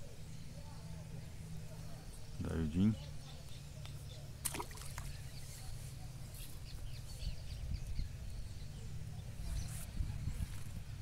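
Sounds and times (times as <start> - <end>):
birds chirping: 0.0 - 11.0
fish splashing into water: 4.4 - 5.2.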